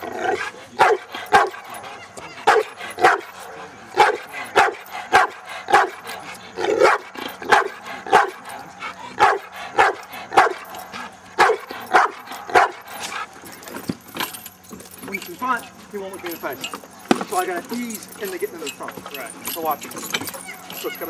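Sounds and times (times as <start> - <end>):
dog barking: 0.2 - 13.2.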